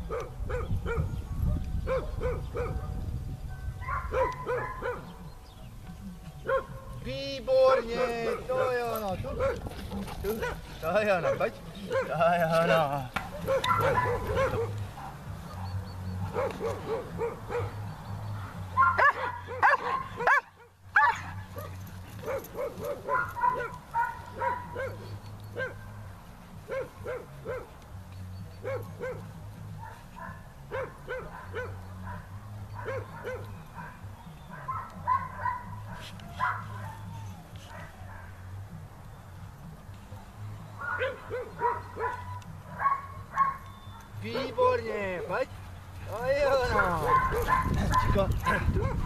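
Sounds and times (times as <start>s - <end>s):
dog barking and yipping: 0.0s - 3.0s, 3.8s - 5.2s, 6.4s - 7.0s, 7.7s - 27.8s, 28.6s - 38.4s, 40.8s - 45.4s, 46.4s - 49.0s.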